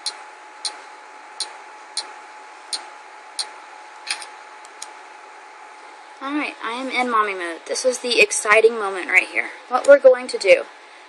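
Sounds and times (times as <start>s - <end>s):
faint high hum and hiss: 0.0s - 11.0s.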